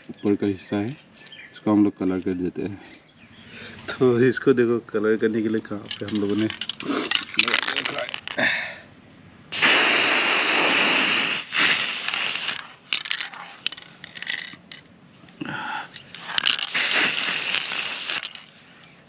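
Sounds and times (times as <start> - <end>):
spray paint can hissing: 9.6 - 14.8, 16.0 - 18.6.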